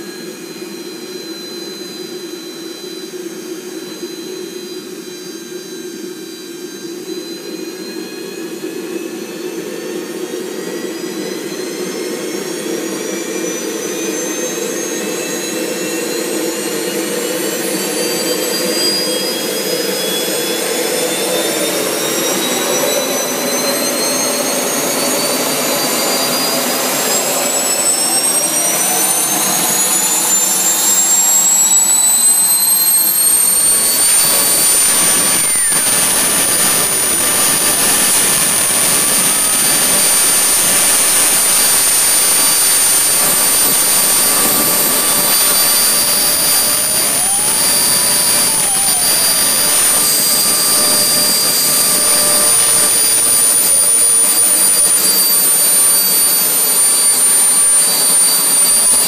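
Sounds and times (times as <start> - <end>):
jet turbine whining: 0.0 - 59.0
exhaust rushing: 33.3 - 53.3.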